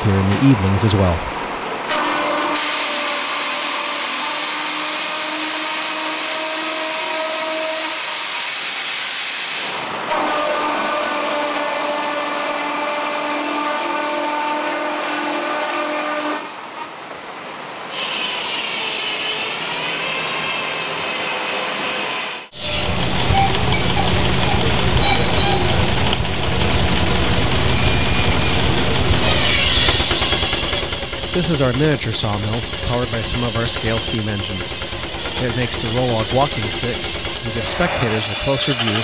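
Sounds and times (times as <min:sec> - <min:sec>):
sawmill sawing through log: 0:01.9 - 0:08.3, 0:22.5 - 0:39.0
wavering high whine: 0:22.5 - 0:39.0.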